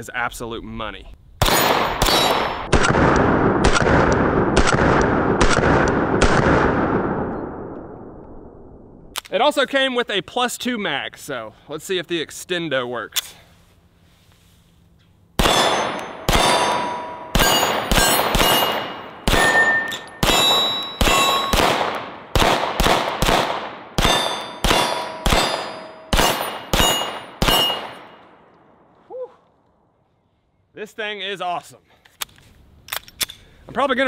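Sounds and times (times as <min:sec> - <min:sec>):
pistol shots: 0:01.4 - 0:07.2, 0:15.4 - 0:28.2
steel targets ringing: 0:15.4 - 0:21.8, 0:24.0 - 0:28.3.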